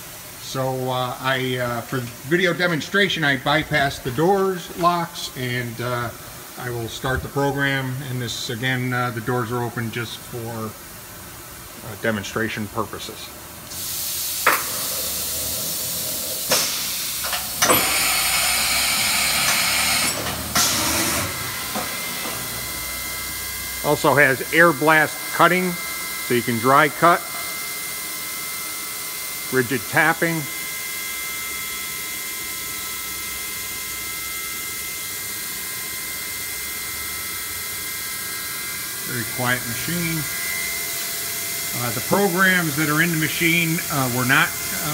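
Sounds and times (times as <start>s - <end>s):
high machine whine: 13.0s - 44.9s
machine hiss: 13.7s - 23.3s.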